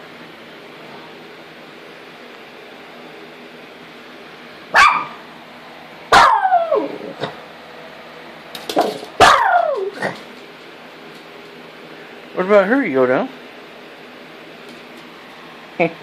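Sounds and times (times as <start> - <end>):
small dogs yelping and barking: 4.8 - 5.2, 6.1 - 7.4, 9.1 - 10.3.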